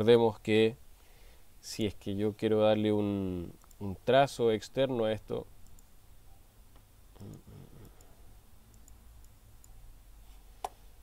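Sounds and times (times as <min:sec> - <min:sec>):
computer mouse clicks: 0:05.6 - 0:05.9, 0:07.2 - 0:09.8.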